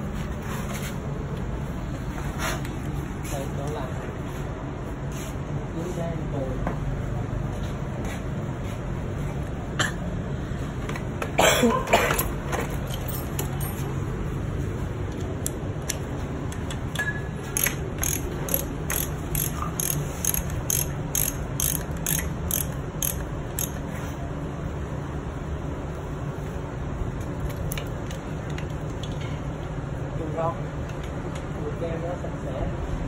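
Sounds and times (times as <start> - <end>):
metallic ratcheting clicks: 15.4 - 23.8.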